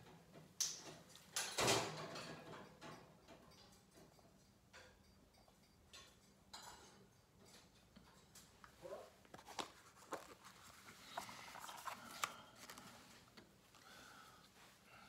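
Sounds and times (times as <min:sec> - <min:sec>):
paper rustling: 0:09.3 - 0:13.8.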